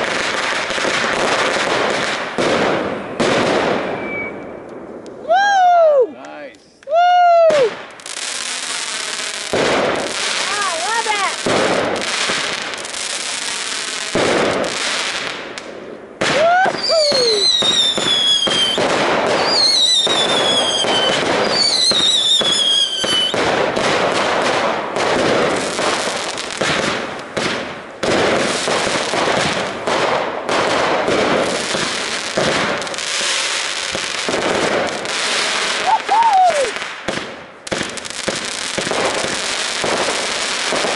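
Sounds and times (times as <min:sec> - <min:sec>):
firework pops and crackling: 0:00.0 - 0:05.2, 0:06.2 - 0:40.9
falling firework whistles: 0:03.8 - 0:04.6, 0:16.3 - 0:23.4.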